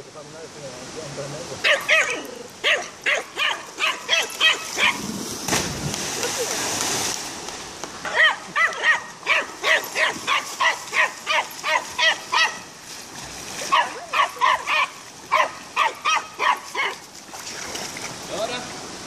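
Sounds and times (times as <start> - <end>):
dog barking rapidly: 1.6 - 5.0, 8.1 - 12.6, 13.7 - 17.0.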